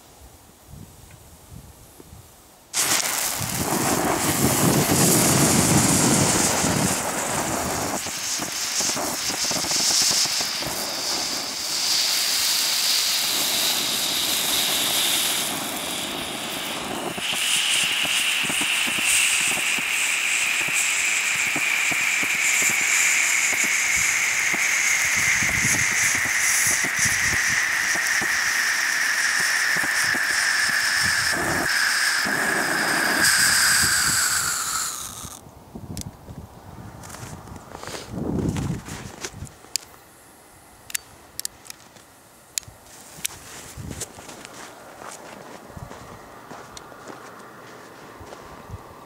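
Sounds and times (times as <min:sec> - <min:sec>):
fountain firework hissing sparks: 0:02.7 - 0:35.4
falling whistling tone: 0:07.9 - 0:35.4.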